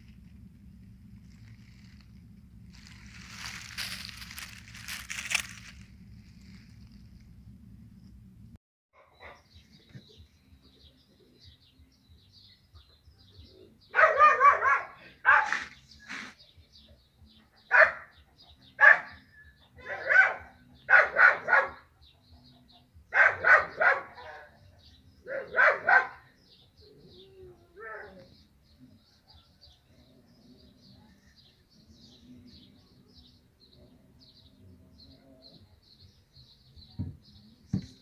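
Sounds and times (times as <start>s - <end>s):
dog barking: 13.9s - 15.7s, 17.7s - 18.2s, 18.8s - 19.2s, 19.8s - 21.9s, 23.1s - 24.5s, 25.3s - 26.3s.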